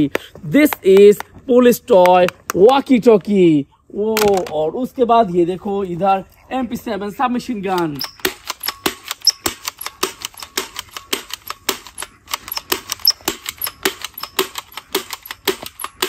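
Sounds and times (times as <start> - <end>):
toy gun firing rapid clicks: 7.8 - 16.0.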